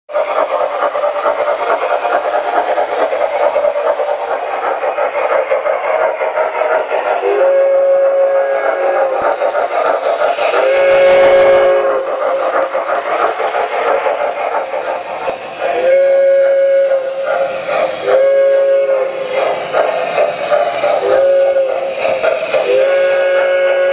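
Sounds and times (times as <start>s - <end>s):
model steam locomotive chuffing: 0.1s - 23.9s
steam whistle blasts: 7.2s - 9.2s, 10.5s - 12.1s, 15.7s - 17.2s, 18.0s - 19.3s, 21.0s - 21.9s, 22.6s - 23.9s.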